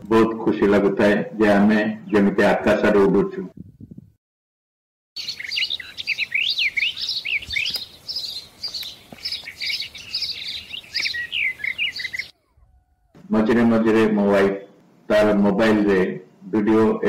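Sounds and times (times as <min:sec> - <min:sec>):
small birds chirping: 0:05.2 - 0:13.6.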